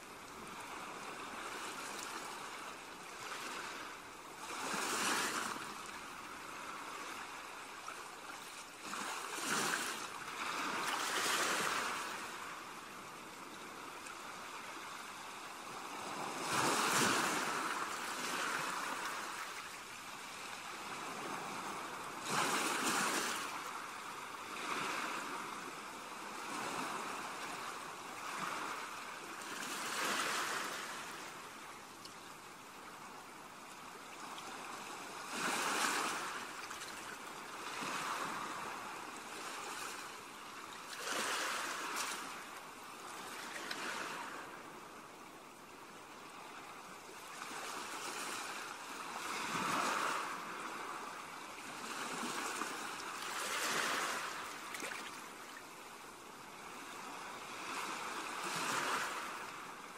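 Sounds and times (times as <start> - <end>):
sea surf washing ashore: 0.1 - 31.8, 32.5 - 45.2, 46.2 - 59.9.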